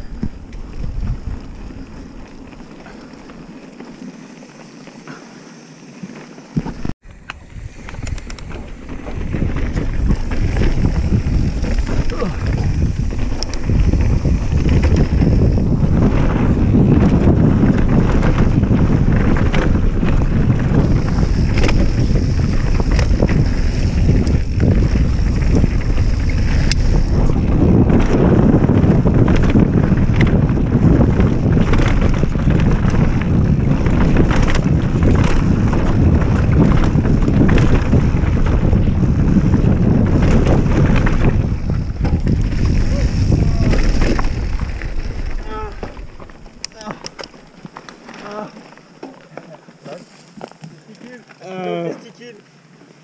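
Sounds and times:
wind buffeting microphone: 0.0 - 3.5, 6.6 - 48.9
bike clicks and rattles: 0.0 - 51.5
bike tyre rumble on dirt: 0.0 - 53.0.

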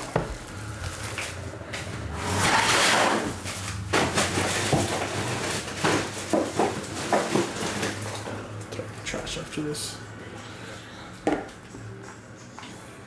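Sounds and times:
rustling scrape on table: 2.2 - 5.7.

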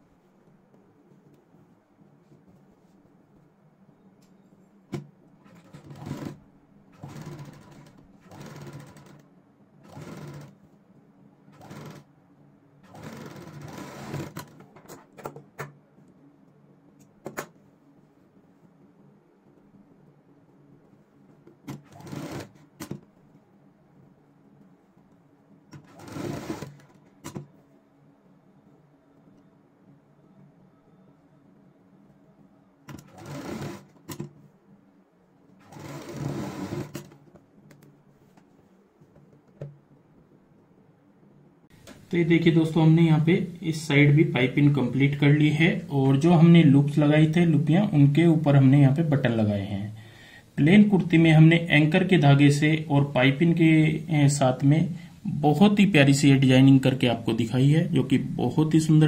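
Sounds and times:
sewing machine running: 5.4 - 9.2, 9.8 - 10.6, 11.5 - 12.1, 12.8 - 14.6, 21.7 - 23.0, 25.8 - 27.4, 32.9 - 34.3, 35.6 - 37.2.

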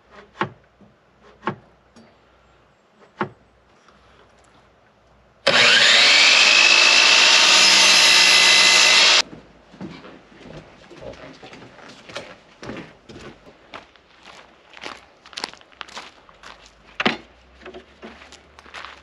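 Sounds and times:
miter saw cutting: 5.4 - 9.2.

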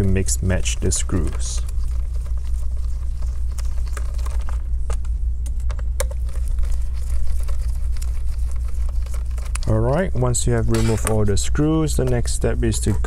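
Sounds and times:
steady low hum: 0.0 - 13.0
clicks and rustling of handling: 8.5 - 9.8.

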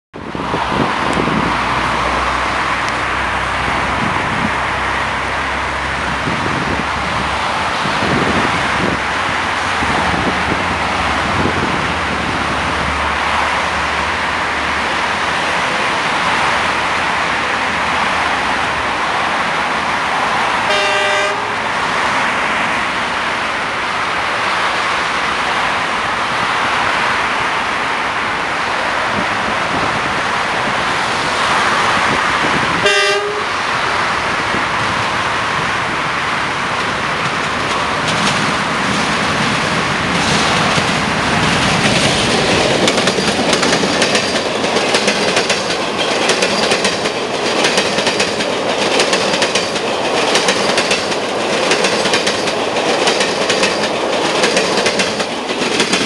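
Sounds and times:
traffic rumble: 0.2 - 56.0
locomotive horn blast: 20.7 - 21.7, 32.8 - 33.6.

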